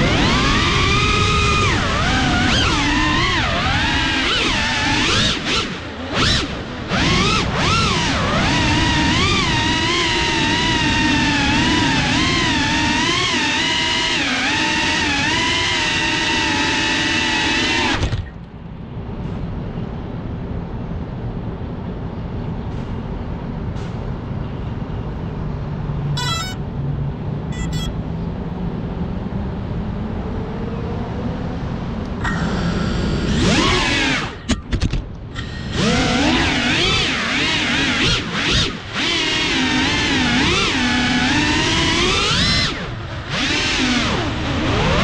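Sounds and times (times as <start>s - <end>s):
quadcopter motors whining: 0.0s - 18.3s, 26.2s - 26.6s, 27.5s - 27.9s, 32.1s - 34.7s, 35.3s - 45.0s
short electronic chirps: 26.2s - 26.6s, 27.5s - 28.0s.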